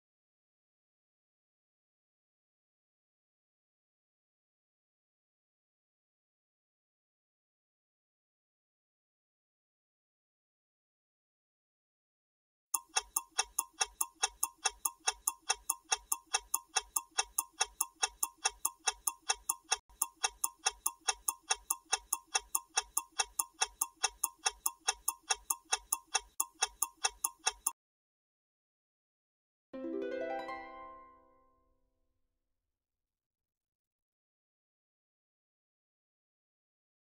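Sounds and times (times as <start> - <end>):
clock ticking: 12.8 - 27.8.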